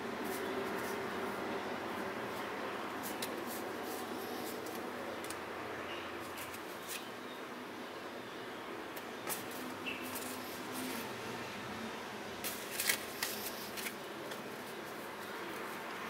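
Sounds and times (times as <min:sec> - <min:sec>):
steady background hiss: 0:00.0 - 0:16.0
playing cards clicking and flicking: 0:03.0 - 0:05.4, 0:06.3 - 0:07.1, 0:12.4 - 0:15.8.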